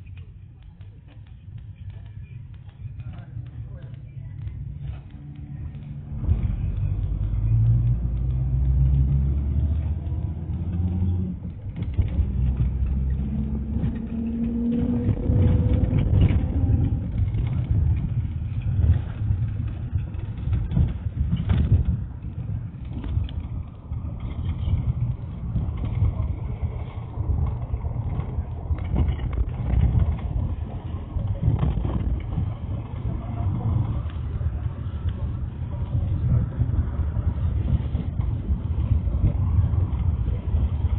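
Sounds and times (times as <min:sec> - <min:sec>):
road noise inside cabin: 0:00.0 - 0:40.9
minibus engine accelerating: 0:04.4 - 0:40.9
body knocks and rattles: 0:11.5 - 0:34.1.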